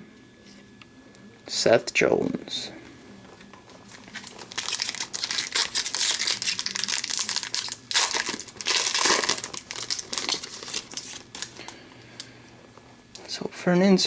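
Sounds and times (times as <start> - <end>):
foil wrapper crinkling and tearing: 3.9 - 11.8.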